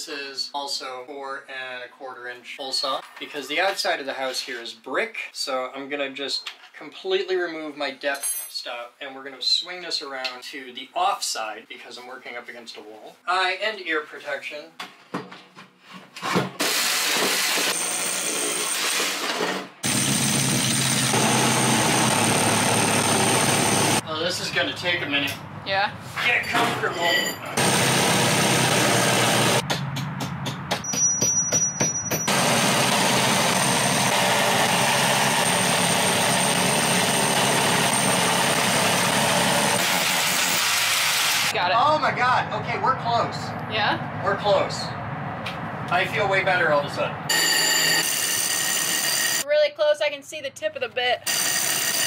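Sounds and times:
rotary hammer boring into brick: 0:51.3 - 0:52.0.

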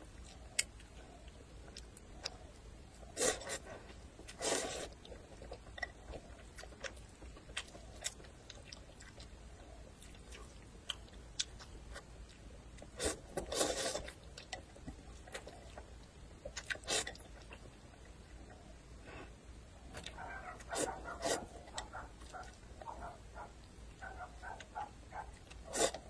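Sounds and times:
chewing: 0:00.1 - 0:18.8, 0:19.9 - 0:26.0
person slurping noodles: 0:03.2 - 0:03.6, 0:04.4 - 0:04.9, 0:13.0 - 0:14.1, 0:25.7 - 0:26.0.

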